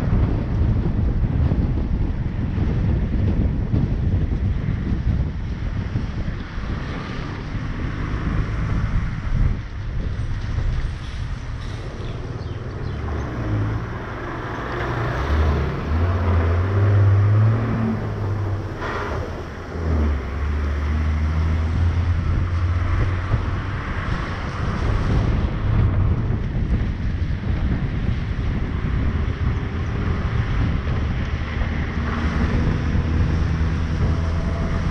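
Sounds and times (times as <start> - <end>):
car engine drone: 0.0 - 34.9
tyres hissing on wet road: 10.8 - 25.3.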